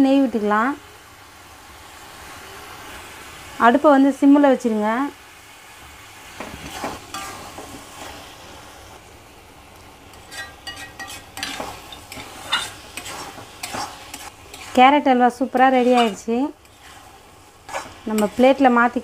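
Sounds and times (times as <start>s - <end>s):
soft sizzle of cooking: 0.0s - 19.0s
metal ladle scraping a pan: 6.6s - 8.2s, 10.1s - 18.8s.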